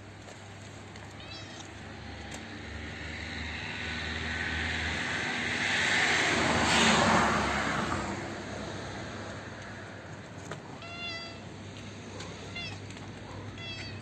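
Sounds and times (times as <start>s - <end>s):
vehicle passing by: 1.2s - 14.0s.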